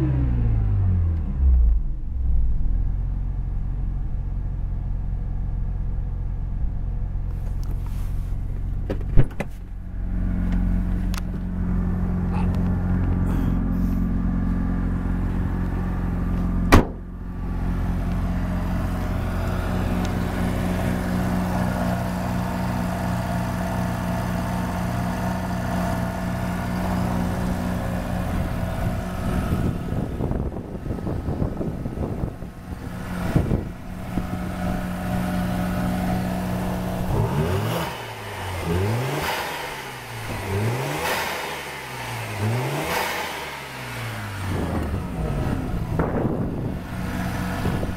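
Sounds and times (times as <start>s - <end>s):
engine revving: 0.0s - 3.1s, 9.9s - 47.9s
engine bang: 16.6s - 17.2s, 44.5s - 46.8s.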